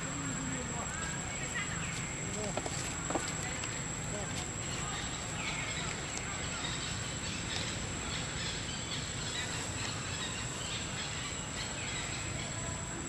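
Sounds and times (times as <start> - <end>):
steady hiss and low rumble: 0.0 - 13.0.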